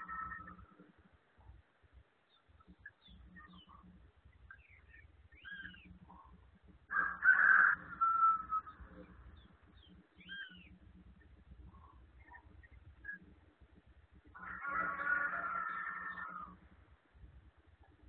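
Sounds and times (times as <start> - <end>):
birds chirping and whistling: 2.6 - 3.9, 4.5 - 6.4, 7.1 - 10.8.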